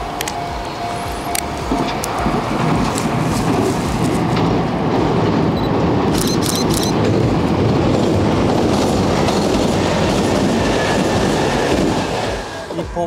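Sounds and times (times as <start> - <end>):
train wheels rumbling on rails: 0.0 - 13.0
sharp clicks: 6.1 - 7.0.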